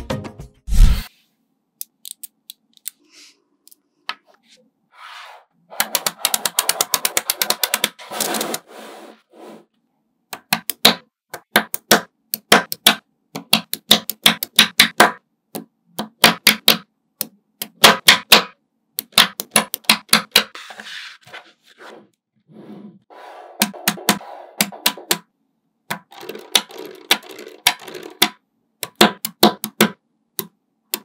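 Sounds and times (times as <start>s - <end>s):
magnetic balls clicking together: 25.9s - 31.0s.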